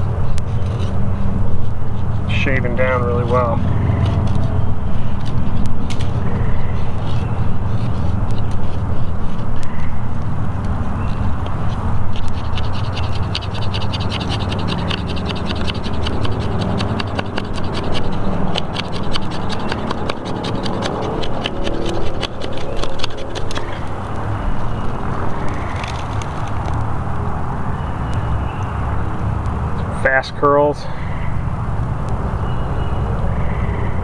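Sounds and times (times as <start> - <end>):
knife shaving wood: 5.2 - 9.7, 11.0 - 26.8.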